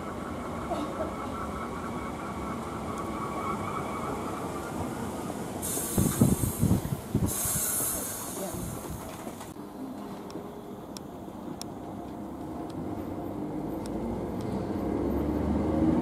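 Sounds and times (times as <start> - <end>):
train rumble with faint whine: 0.0 - 16.0
loud hiss: 5.6 - 9.5.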